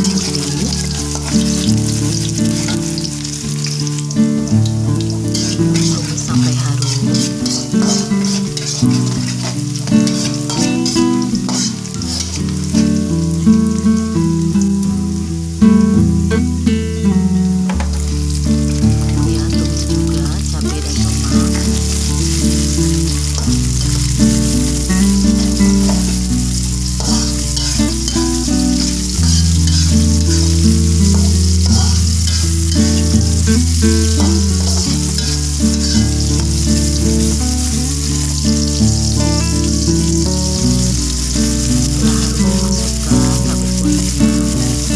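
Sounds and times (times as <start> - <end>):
metal spatula stirring in wok: 0.0 - 13.0, 20.1 - 44.9
vegetables sizzling in hot oil: 0.0 - 44.9.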